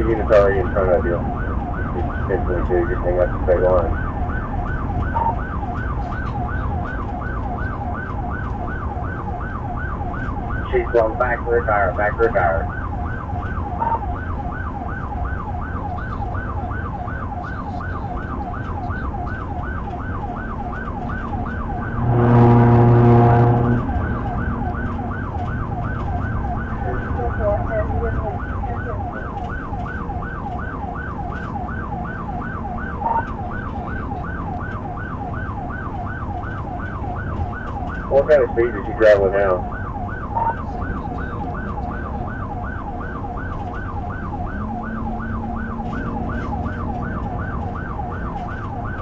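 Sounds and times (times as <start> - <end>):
engine and road noise: 0.0 - 49.0
police siren yelping: 0.0 - 49.0
loud low horn blast: 21.9 - 24.6.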